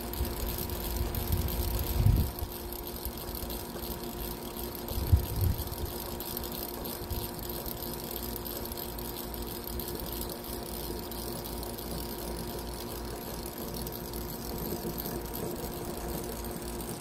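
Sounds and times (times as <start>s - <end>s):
faint steady hum: 0.0s - 17.0s
wind rumbling on microphone: 1.0s - 2.5s, 5.0s - 6.0s.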